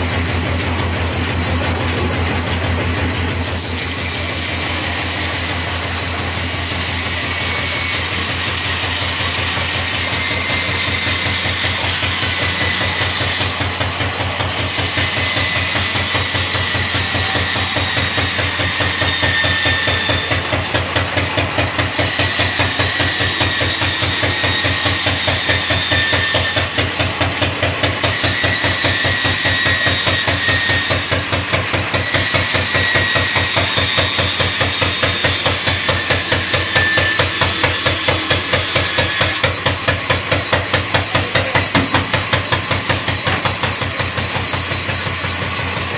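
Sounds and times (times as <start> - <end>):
band saw cutting wood: 0.0 - 45.9
faint high whistle: 35.8 - 37.9.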